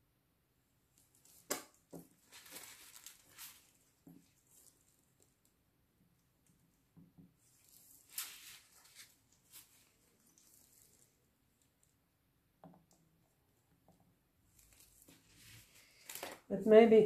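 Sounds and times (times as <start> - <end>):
soft plastic rustles: 0.9 - 5.6, 6.4 - 12.0, 14.4 - 16.5.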